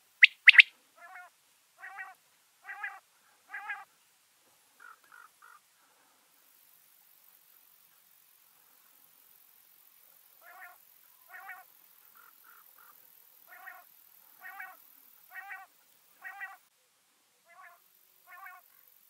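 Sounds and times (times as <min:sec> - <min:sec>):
quail calling: 0:00.2 - 0:03.9, 0:04.8 - 0:05.6, 0:10.4 - 0:16.6, 0:17.5 - 0:18.7.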